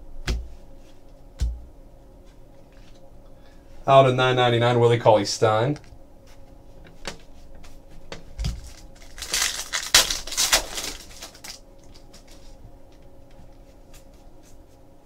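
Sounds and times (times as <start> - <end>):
cards rustling: 8.4 - 12.6.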